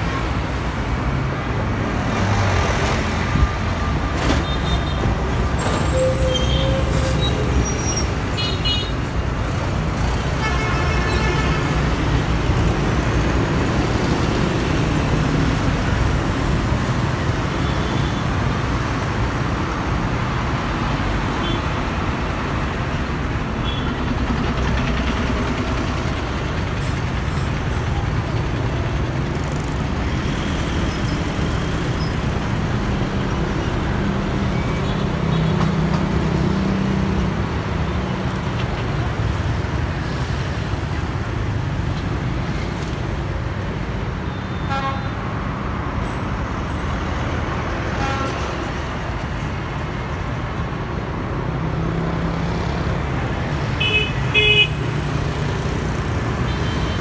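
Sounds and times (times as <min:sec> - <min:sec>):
bus engine rumbling: 0:01.4 - 0:08.4, 0:22.1 - 0:34.2
motorbikes and cars passing: 0:11.3 - 0:44.2, 0:45.5 - 0:57.0.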